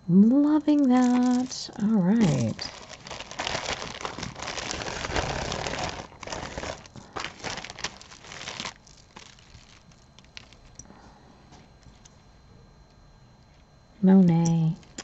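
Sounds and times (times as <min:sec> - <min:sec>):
packaging crinkling: 0:00.5 - 0:10.8, 0:14.8 - 0:15.0.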